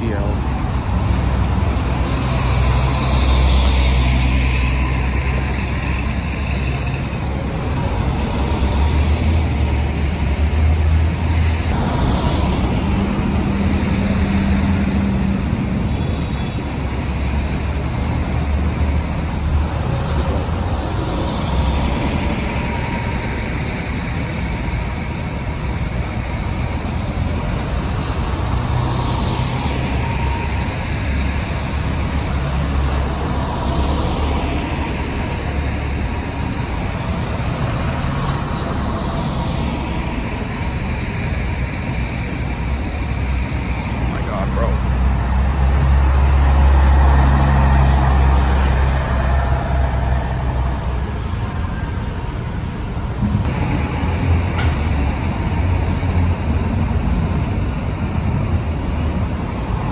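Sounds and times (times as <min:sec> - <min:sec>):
bus diesel engines: 0:00.0 - 0:59.9
passing traffic hiss: 0:00.0 - 0:59.9.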